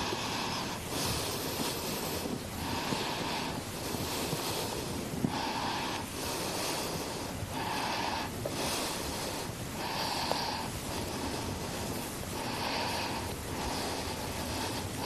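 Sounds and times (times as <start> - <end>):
person breathing: 0.0 - 15.0.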